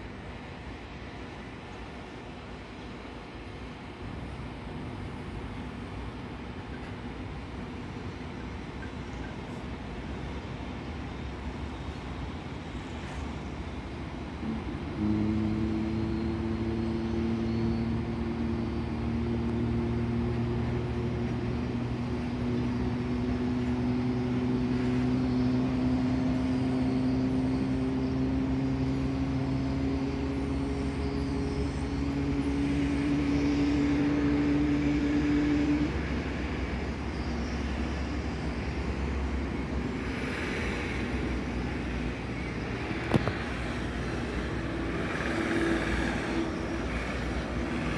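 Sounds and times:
engine drone rising in pitch: 0:14.4 - 0:47.9.

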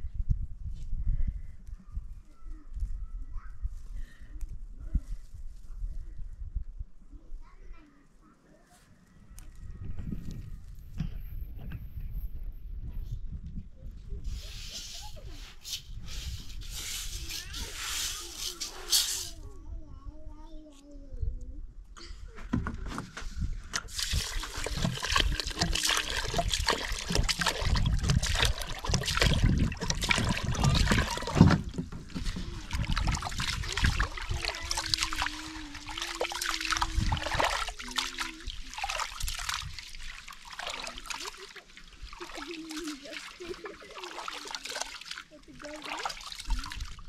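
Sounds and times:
water splashing and trickling: 0:23.7 - 0:47.0.

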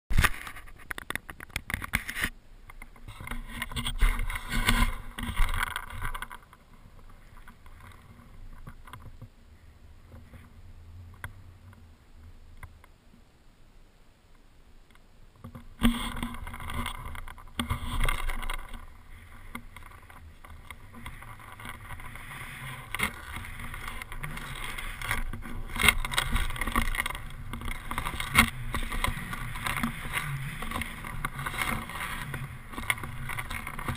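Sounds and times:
skis rushing through snow: 0:17.7 - 0:33.9.

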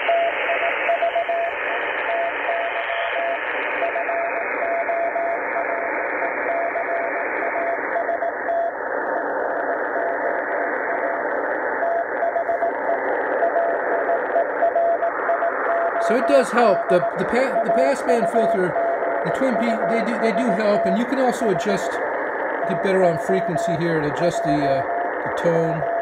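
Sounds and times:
radio receiver hiss: 0:00.0 - 0:26.0
morse code beeps: 0:14.6 - 0:22.0.

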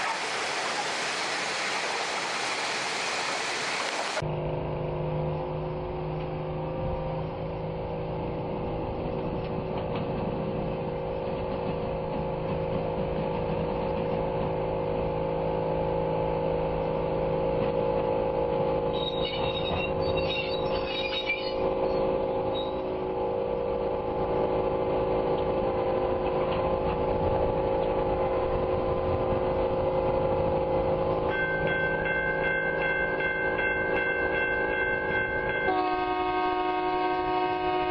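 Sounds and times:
high squeaks: 0:18.9 - 0:22.9.

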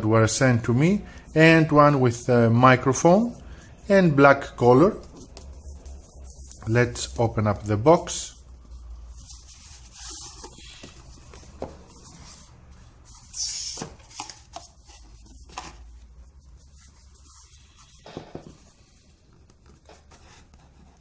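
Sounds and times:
cardboard scraping rustles: 0:08.7 - 0:19.0.

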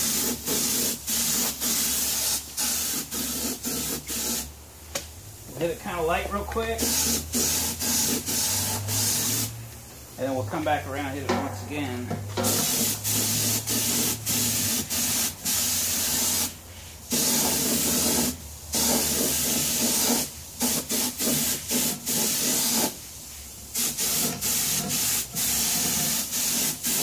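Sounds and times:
paint spray gun hissing: 0:00.0 - 0:04.5, 0:06.8 - 0:09.6, 0:12.4 - 0:23.1, 0:23.7 - 0:27.0.

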